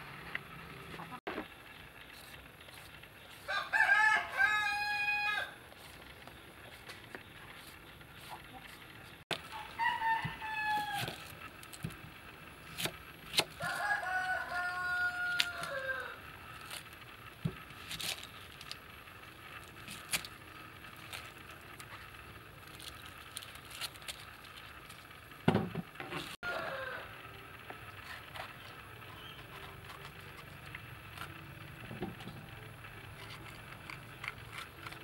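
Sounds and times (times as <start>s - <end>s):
rooster crowing: 3.4s - 5.6s, 9.5s - 11.3s, 13.6s - 16.2s, 26.4s - 27.3s.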